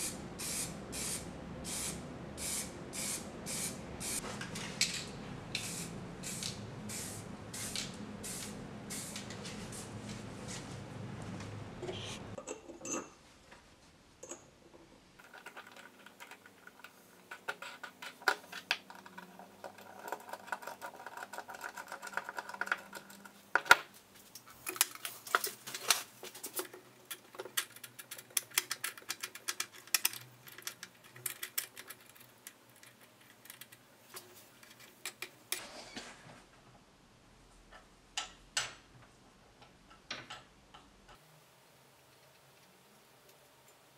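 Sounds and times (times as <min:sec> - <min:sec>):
small metal parts clicking: 0:26.4 - 0:33.9.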